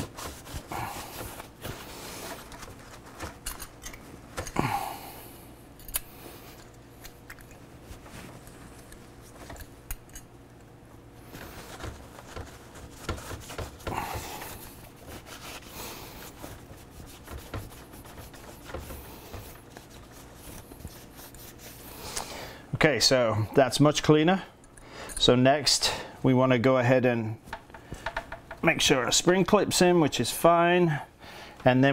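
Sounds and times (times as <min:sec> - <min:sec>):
small clicks of handled metal: 0:05.8 - 0:07.6.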